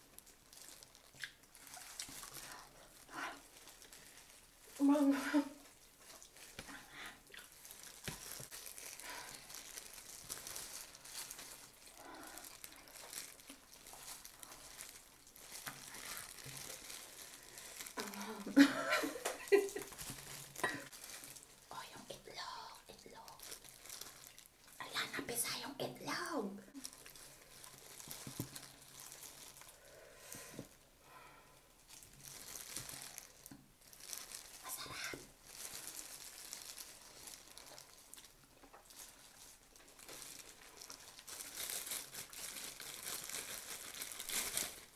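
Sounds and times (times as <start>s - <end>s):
plastic gloves crinkling: 0.0s - 44.9s
person chewing: 0.2s - 4.6s, 5.6s - 18.5s, 35.6s - 44.9s.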